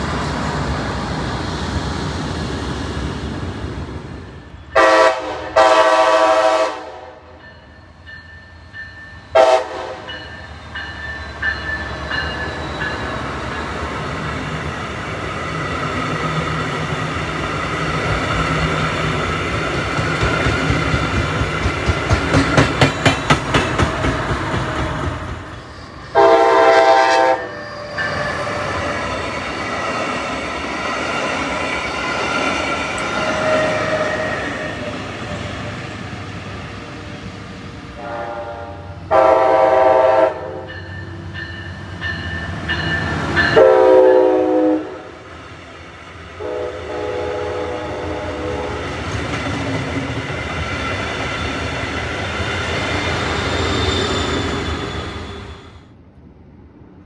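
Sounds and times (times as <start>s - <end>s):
train wheels rumbling on rails: 0.0s - 56.0s
train horn blasts: 4.7s - 7.4s, 9.3s - 10.2s, 26.1s - 28.8s, 38.0s - 40.7s, 43.5s - 45.1s, 46.4s - 48.9s.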